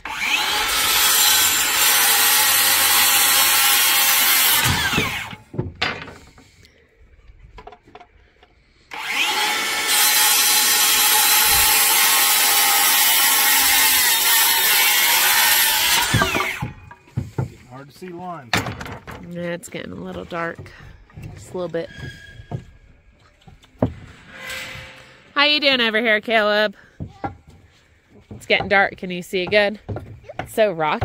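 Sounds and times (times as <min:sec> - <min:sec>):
power saw cutting wood: 0:00.0 - 0:05.4, 0:08.9 - 0:17.5
small knocks: 0:27.0 - 0:31.0.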